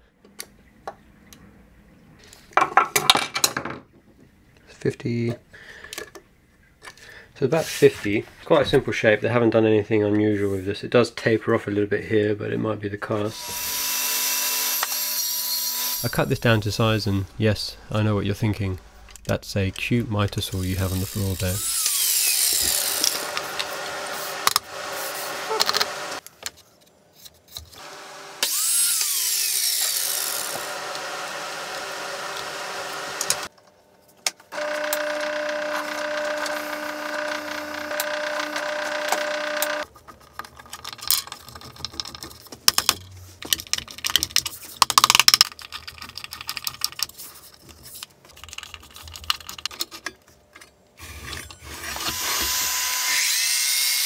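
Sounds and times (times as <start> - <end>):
power tool whining: 13.3 - 16.2, 20.8 - 26.2, 27.8 - 33.5, 34.5 - 39.8, 51.0 - 54.0
drill press motor running: 21.6 - 26.2, 27.8 - 33.5, 34.5 - 39.8, 51.0 - 53.4.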